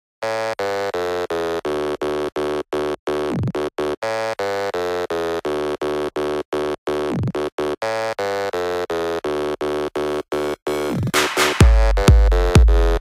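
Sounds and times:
synthesizer stabs: 10.7 - 13.0.

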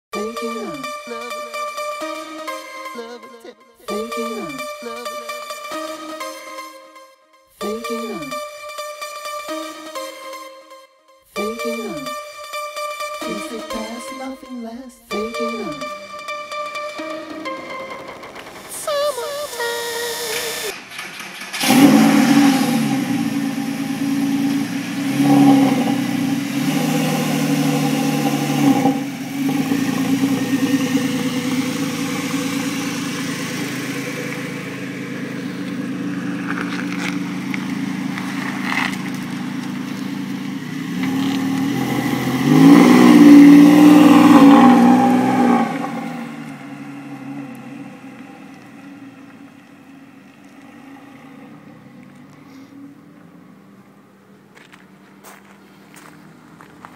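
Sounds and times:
car engine revving and idling: 19.5 - 56.9.

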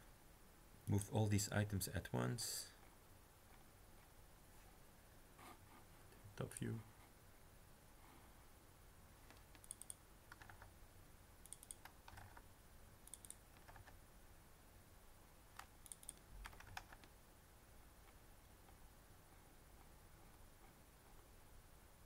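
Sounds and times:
computer keyboard and mouse clicks: 9.2 - 10.7, 11.4 - 12.4, 13.0 - 14.0, 15.5 - 17.2.

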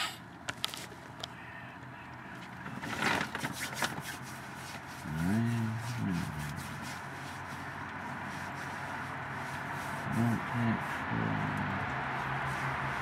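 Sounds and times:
person humming low: 5.1 - 6.8, 10.0 - 11.8.

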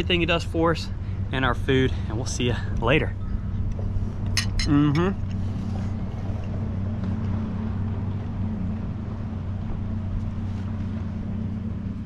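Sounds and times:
low motor hum: 0.0 - 12.0.

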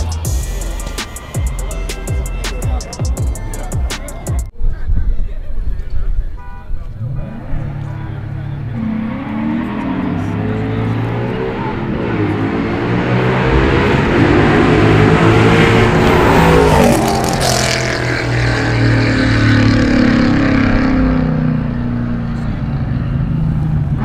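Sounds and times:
cars accelerating hard: 7.0 - 24.0.

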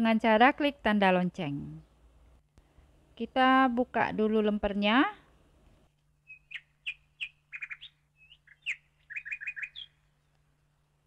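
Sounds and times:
small bird chirping: 6.2 - 10.4.

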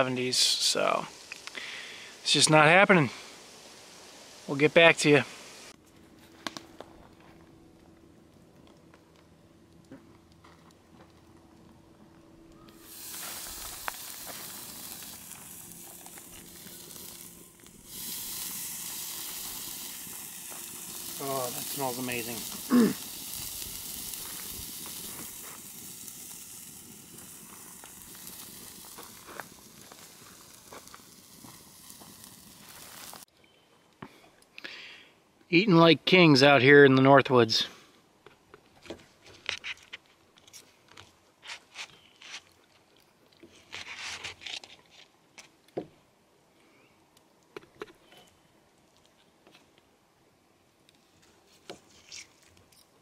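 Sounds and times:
steaks sizzling on a grill: 0.0 - 5.7, 12.7 - 33.3.

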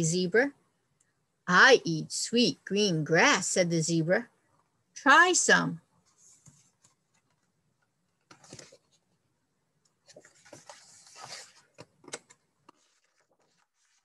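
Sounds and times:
paper page turning: 8.3 - 9.0, 10.0 - 14.0.

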